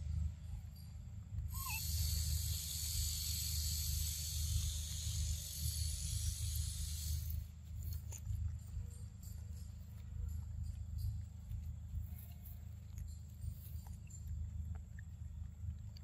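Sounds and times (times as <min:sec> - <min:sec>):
high hiss: 0:01.5 - 0:08.0.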